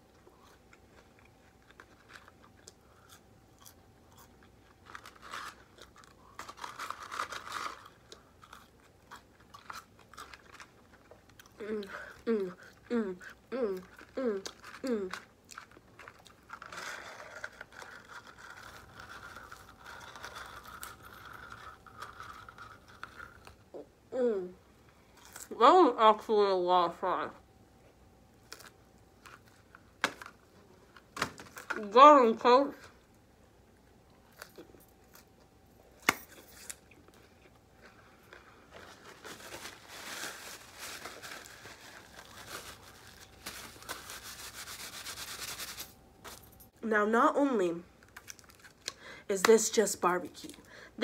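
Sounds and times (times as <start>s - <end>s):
fries rustling in paper carton: 38.4s - 46.0s.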